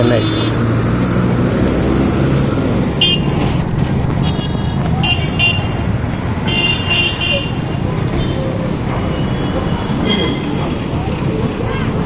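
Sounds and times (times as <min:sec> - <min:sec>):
bus engines running: 0:00.0 - 0:12.0
vehicle horn toots: 0:03.0 - 0:03.4, 0:06.4 - 0:08.4.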